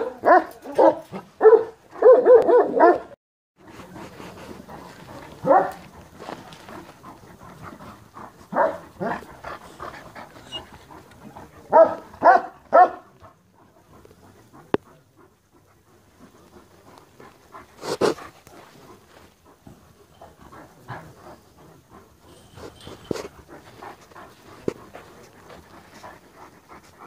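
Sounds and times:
dog panting: 0:03.6 - 0:27.0.

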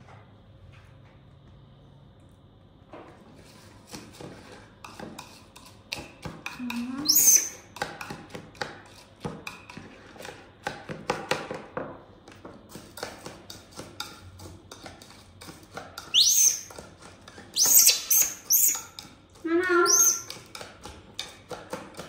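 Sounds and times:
baby monkey squealing: 0:07.0 - 0:07.6, 0:16.1 - 0:16.7, 0:17.6 - 0:18.9, 0:19.5 - 0:20.3.

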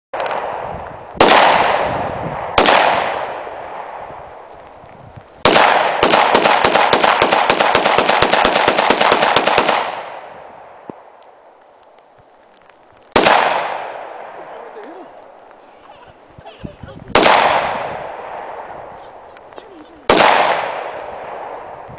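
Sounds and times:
pistol shots: 0:01.2 - 0:04.0, 0:05.4 - 0:10.4, 0:13.2 - 0:14.4, 0:17.2 - 0:18.7, 0:20.1 - 0:21.6.

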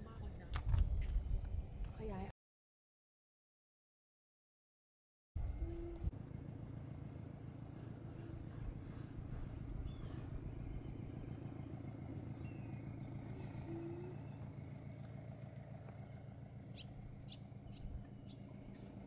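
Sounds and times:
low engine hum: 0:05.4 - 0:19.0.

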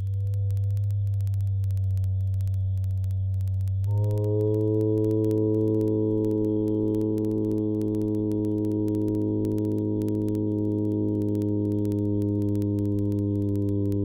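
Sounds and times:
faint clicks: 0:00.0 - 0:14.0
electronic drone chord: 0:03.8 - 0:14.0.

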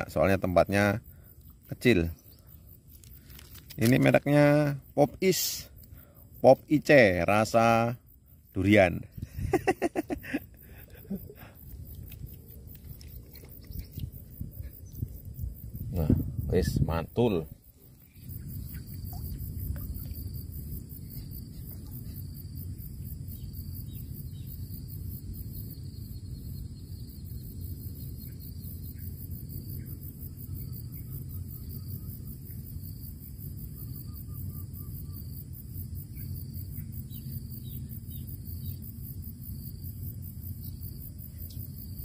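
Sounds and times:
high insect trill: 0:00.0 - 0:42.0
faint bird chirps: 0:12.9 - 0:15.3, 0:17.3 - 0:22.4, 0:33.7 - 0:35.4.

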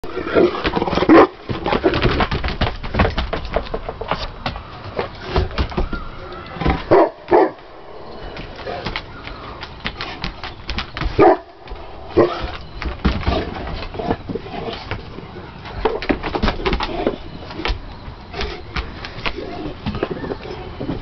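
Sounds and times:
dogs barking: 0:06.8 - 0:07.7, 0:11.1 - 0:12.6.

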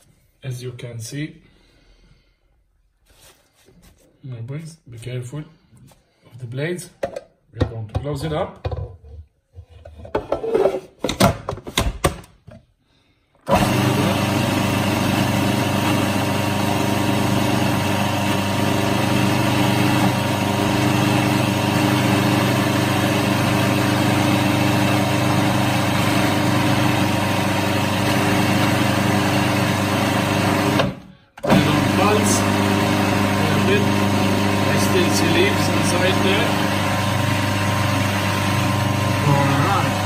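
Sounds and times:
blender motor running: 0:13.5 - 0:40.0.

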